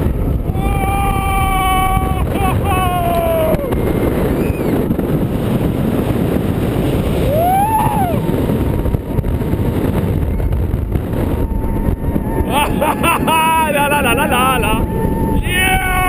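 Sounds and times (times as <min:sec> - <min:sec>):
roller coaster train rumble: 0:00.0 - 0:16.0
wind rushing over microphone: 0:00.0 - 0:16.0
rider shouting: 0:00.6 - 0:03.6, 0:15.4 - 0:16.0.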